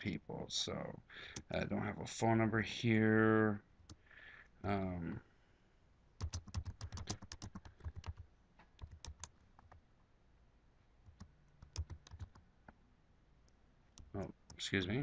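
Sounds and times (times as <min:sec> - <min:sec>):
keyboard typing: 0:06.2 - 0:08.2, 0:08.8 - 0:09.8, 0:11.0 - 0:12.4, 0:14.0 - 0:14.7.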